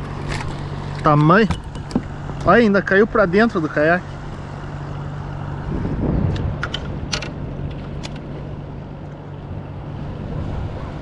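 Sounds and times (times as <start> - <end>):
wind and water noise: 0.0 - 11.0.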